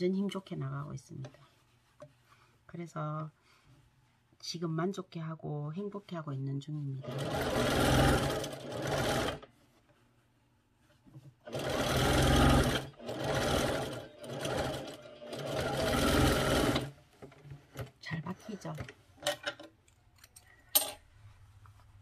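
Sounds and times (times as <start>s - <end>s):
sewing machine stitching: 7.0s - 9.5s, 11.4s - 17.9s.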